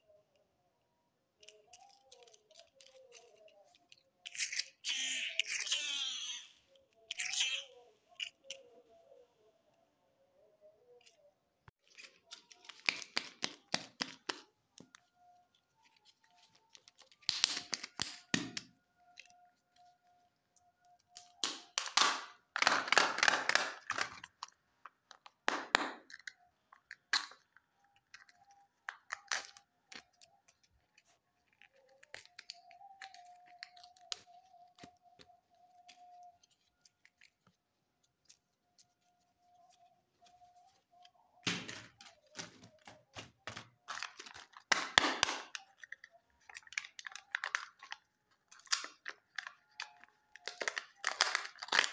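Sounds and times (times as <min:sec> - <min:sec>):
plastic shells clicking: 0:21.1 - 0:36.1, 0:41.6 - 0:51.9
wrapper crinkling and tearing: 0:43.6 - 0:51.9.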